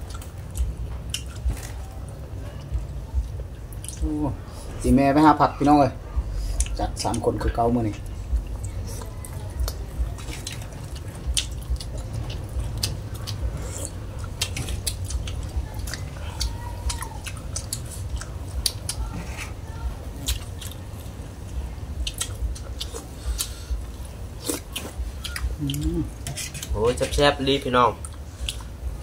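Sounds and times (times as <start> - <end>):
people chewing and lip smacking: 0.0 - 29.0
steady low rumble: 0.0 - 29.0.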